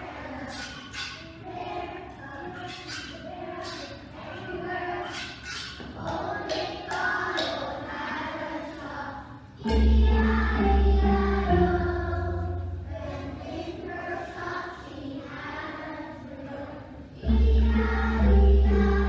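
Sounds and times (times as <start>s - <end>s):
children's choir singing: 0.0s - 19.0s
musical accompaniment with strong bass: 9.6s - 13.2s, 17.2s - 19.0s.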